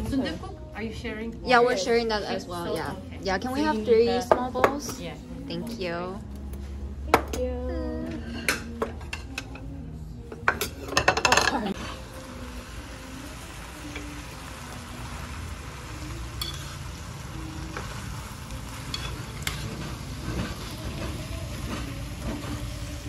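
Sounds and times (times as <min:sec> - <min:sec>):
ceramic bowls clinking on table: 0:10.3 - 0:11.8
food sizzling in metal pan: 0:11.2 - 0:23.0
spoons clicking against pan: 0:16.4 - 0:16.7.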